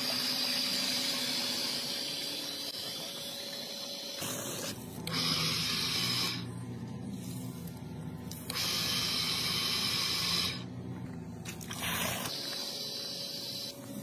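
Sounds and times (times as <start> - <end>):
water pump humming: 0.0 - 14.0
water spraying from hose: 11.5 - 12.4.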